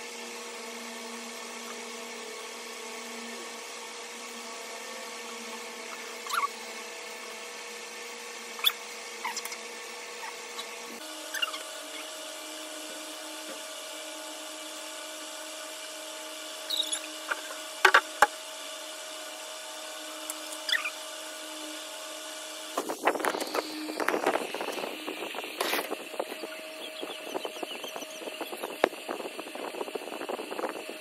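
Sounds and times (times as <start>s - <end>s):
plastic squeaks and knocks: 16.7s - 18.1s
steady hum: 22.4s - 31.0s.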